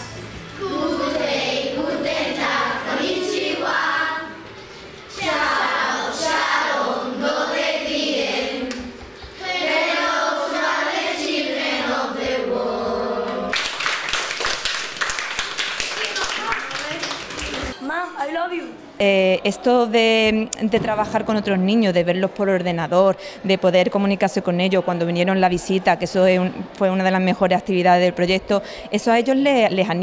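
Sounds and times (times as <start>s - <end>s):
children singing: 0.6s - 4.5s, 5.1s - 13.5s
hand clapping: 13.5s - 17.8s.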